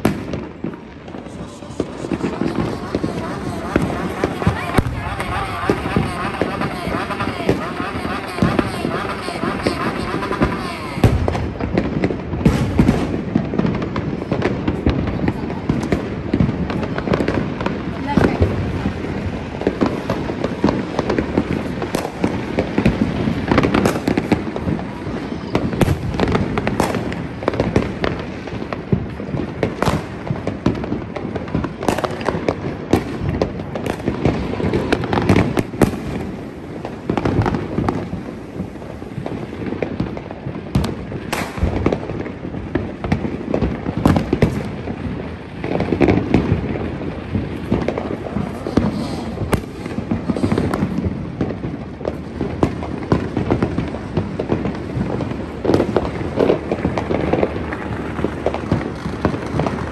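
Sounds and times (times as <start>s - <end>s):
fireworks bangs and crackling: 0.0s - 59.9s.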